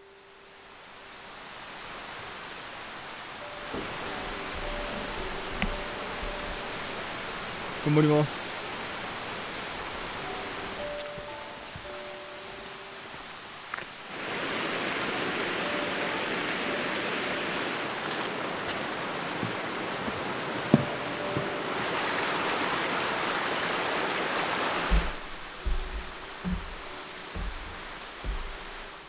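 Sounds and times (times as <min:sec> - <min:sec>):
stream rushing over rocks: 0:00.0 - 0:29.0
sharp knock: 0:24.9 - 0:28.7.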